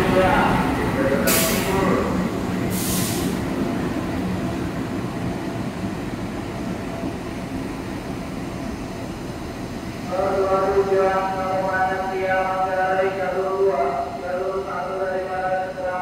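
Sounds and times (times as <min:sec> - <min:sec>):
train wheels on rails: 0:00.0 - 0:16.0
short hiss: 0:02.7 - 0:03.4.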